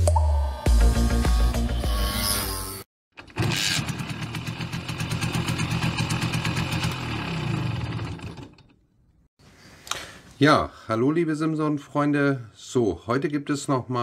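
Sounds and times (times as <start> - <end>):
two-stroke moped engine running: 3.2 - 8.7.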